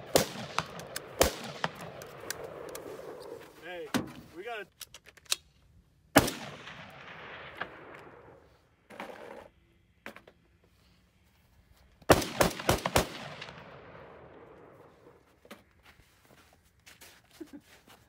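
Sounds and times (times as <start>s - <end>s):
rifle shots with echo: 0.0s - 2.7s, 6.1s - 8.5s, 12.1s - 14.9s.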